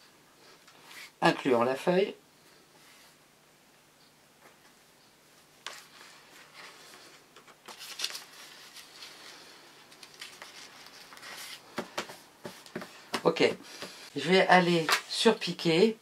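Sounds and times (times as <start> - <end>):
paper and fabric rustling: 5.7 - 14.0.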